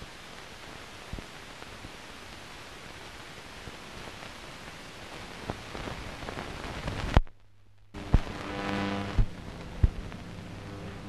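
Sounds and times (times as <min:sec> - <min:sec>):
film soundtrack hiss: 0:00.0 - 0:11.0
clicks and pops: 0:06.9 - 0:08.5.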